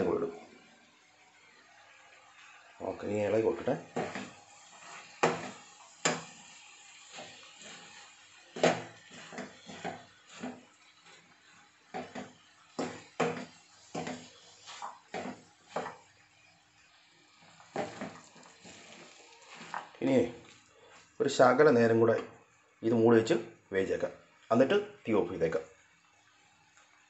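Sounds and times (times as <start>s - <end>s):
spatula scraping frying pan: 3.8s - 16.3s, 17.0s - 20.5s.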